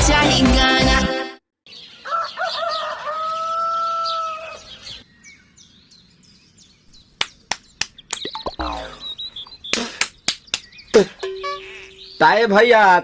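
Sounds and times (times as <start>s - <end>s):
small birds chirping: 1.7s - 13.0s
rooster crowing: 2.0s - 4.8s.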